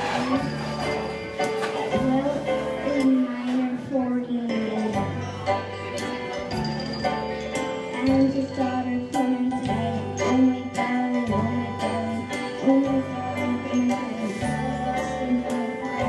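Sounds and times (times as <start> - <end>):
girl singing: 1.8 - 5.7, 7.9 - 16.0.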